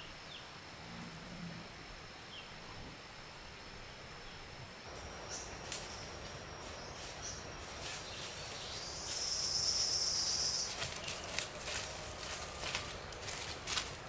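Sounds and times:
insect trilling: 0:04.9 - 0:13.4.

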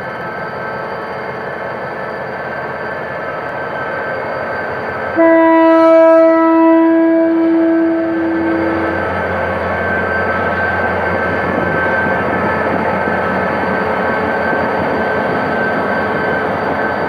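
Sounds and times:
diesel locomotive running: 0:00.0 - 0:17.0
locomotive air horn blast: 0:05.2 - 0:09.0.

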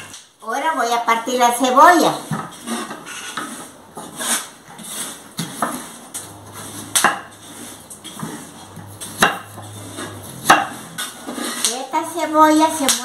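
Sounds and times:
knife slicing onion: 0:02.2 - 0:11.8.

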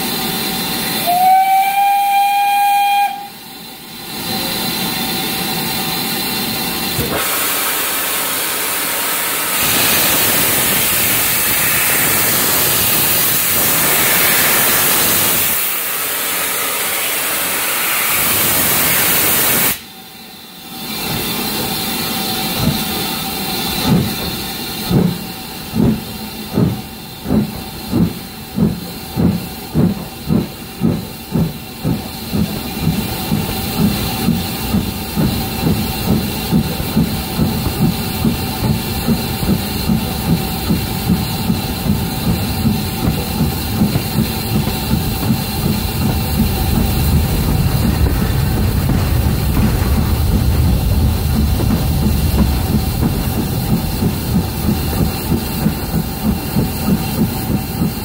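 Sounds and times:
steam hissing: 0:00.0 - 0:58.0
steam locomotive whistle: 0:00.8 - 0:03.6, 0:07.1 - 0:19.9
locomotive exhaust beats: 0:20.7 - 0:58.0.

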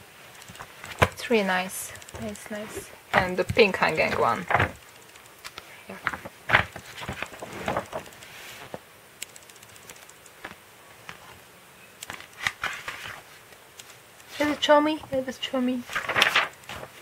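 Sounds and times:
magazine pages rustling: 0:00.4 - 0:04.8, 0:05.5 - 0:08.8, 0:12.0 - 0:17.0.

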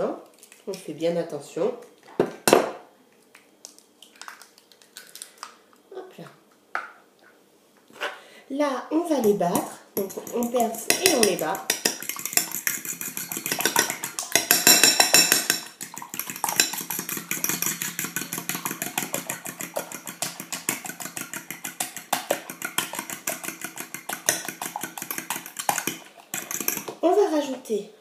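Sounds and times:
fork beating eggs in glass bowl: 0:09.2 - 0:27.0.

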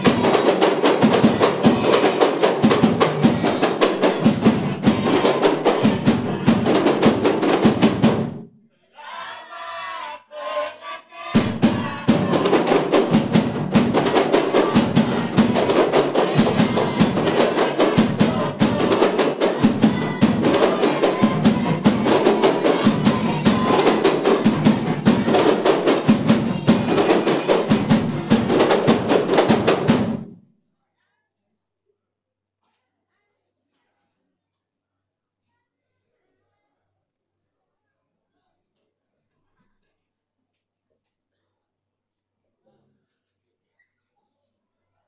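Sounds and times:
frame drums beating fast rhythm: 0:00.0 - 0:08.4, 0:11.4 - 0:30.3
person chanting: 0:09.4 - 0:13.2, 0:13.9 - 0:29.3.

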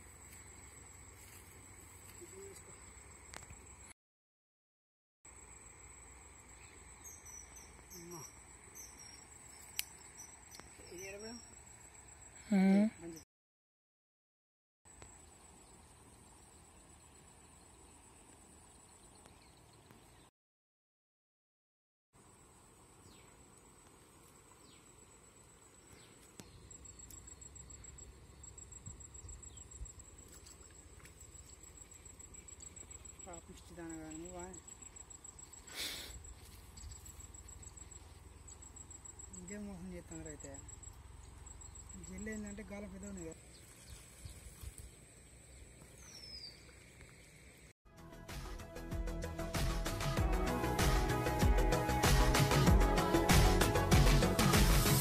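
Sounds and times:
insects trilling: 0:00.0 - 0:03.9, 0:05.3 - 0:13.2, 0:22.2 - 0:47.7.

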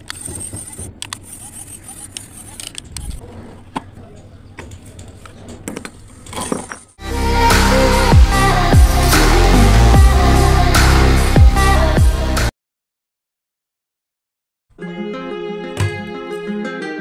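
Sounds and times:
small gear motors running: 0:00.0 - 0:03.2
electronic music with heavy beat: 0:07.0 - 0:12.5.

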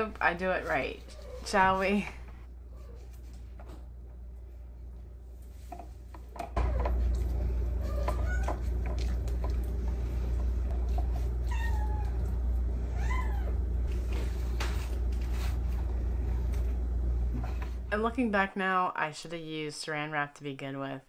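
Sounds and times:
steady low hum: 0:00.0 - 0:18.6
cat meowing: 0:11.4 - 0:12.3.

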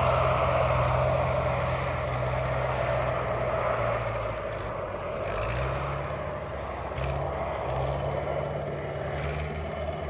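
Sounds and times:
turboprop engine at full power: 0:00.0 - 0:10.0.

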